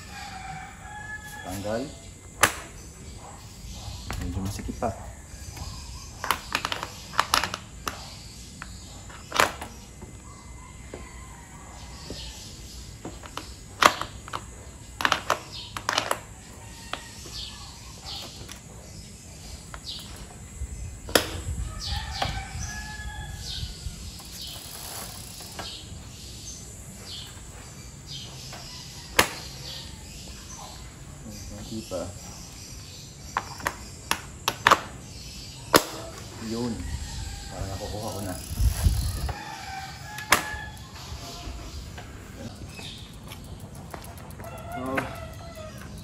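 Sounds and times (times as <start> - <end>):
cycling cleats clicking into pedals: 5.5 - 11.1, 12.0 - 22.7, 23.4 - 31.0, 37.9 - 46.0.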